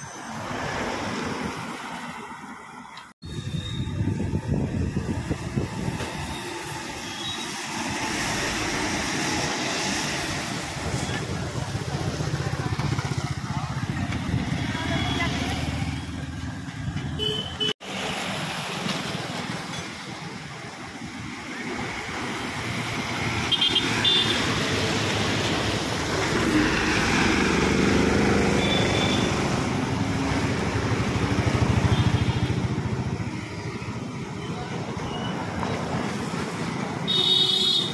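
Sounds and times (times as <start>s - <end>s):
road traffic: 0.0s - 37.9s
motorcycles passing: 3.8s - 37.9s
bus engine passing: 24.4s - 34.7s.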